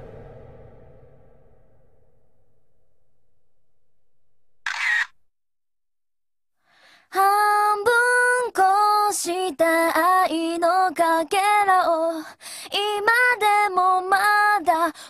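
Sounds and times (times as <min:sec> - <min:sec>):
woman singing unaccompanied: 0:07.1 - 0:15.0.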